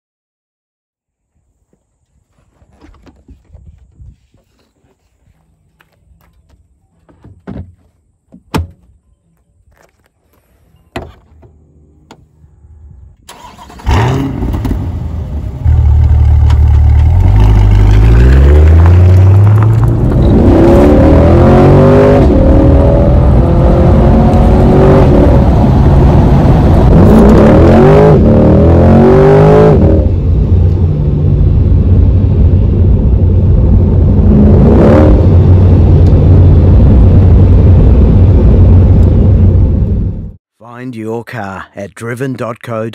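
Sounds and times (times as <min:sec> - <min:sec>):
car engine starting and accelerating: 0:11.6 - 0:40.4.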